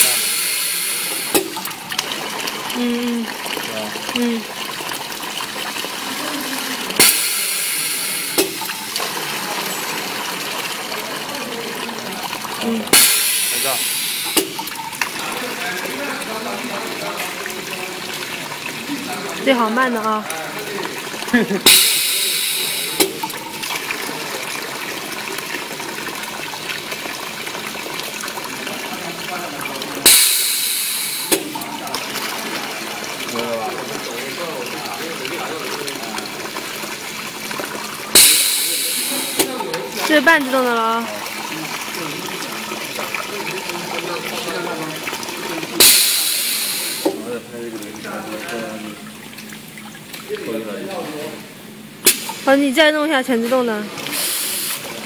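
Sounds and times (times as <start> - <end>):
loud hiss: 0.0 - 1.6, 7.0 - 8.6, 13.0 - 14.6, 21.7 - 23.2, 45.8 - 47.1
hiss of liquid dispensing: 0.0 - 2.2, 6.7 - 10.8, 12.3 - 15.1, 21.6 - 24.1, 30.0 - 32.1, 38.0 - 40.5, 45.8 - 47.3, 53.6 - 55.0
filling machine clicks: 0.0 - 3.0, 6.9 - 9.2, 12.2 - 15.6, 21.6 - 24.0, 29.9 - 32.5, 38.1 - 41.1, 45.8 - 47.2
liquid flowing: 0.0 - 55.0.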